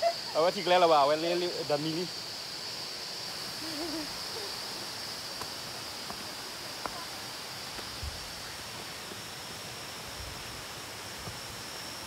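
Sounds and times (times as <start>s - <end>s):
insects buzzing: 0.0s - 12.0s
faint footsteps on trail: 5.2s - 8.5s, 11.2s - 11.5s.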